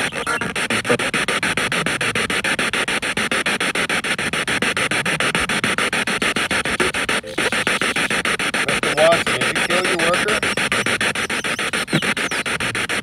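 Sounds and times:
scanning radio static chopping: 0.0 - 1.3, 4.7 - 13.0.

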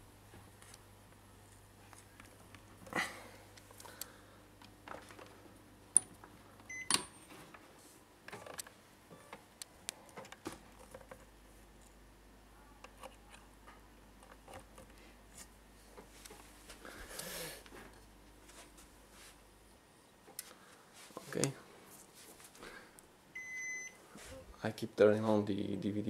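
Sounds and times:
faint mains hum: 0.0 - 26.0.

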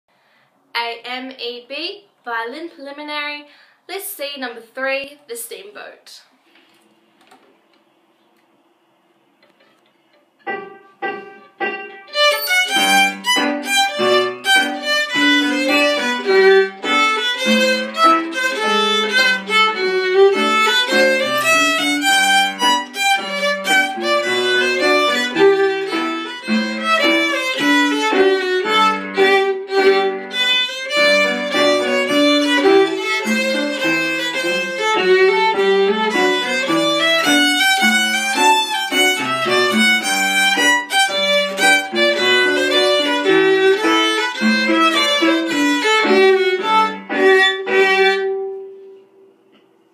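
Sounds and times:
solo violin tune: 12.0 - 48.7.

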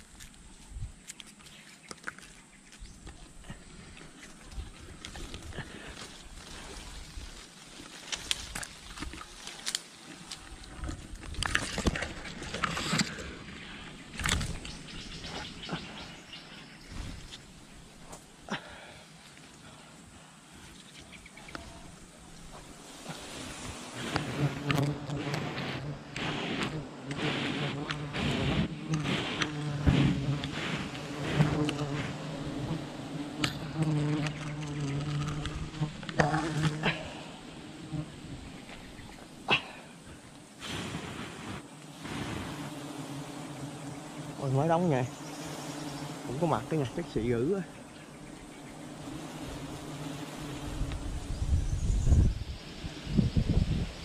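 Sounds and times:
bees buzzing: 11.4 - 19.9, 21.2 - 54.0.

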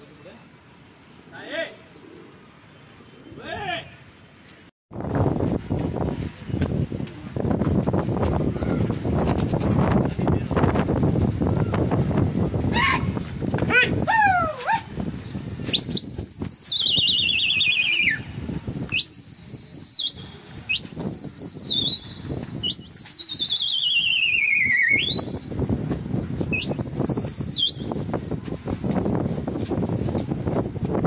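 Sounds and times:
person whistling piercingly: 15.7 - 18.2, 18.9 - 25.7, 26.5 - 27.9.

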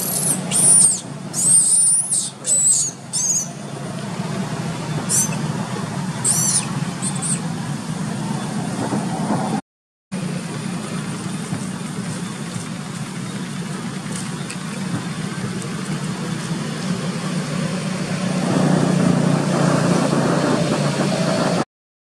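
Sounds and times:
low engine hum: 0.0 - 9.6, 10.2 - 21.7.

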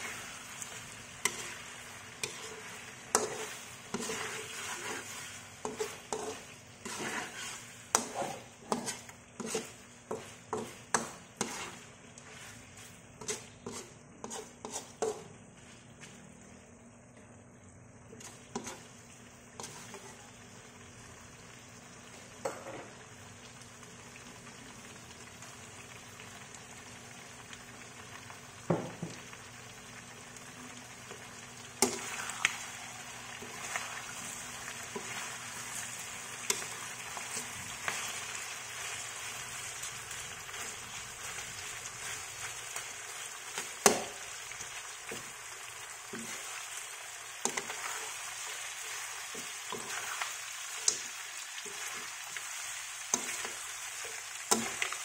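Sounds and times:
food sizzling in a wok: 0.0 - 16.8, 18.1 - 55.0
metal spatula scraping pan: 1.2 - 12.5, 13.2 - 15.2.

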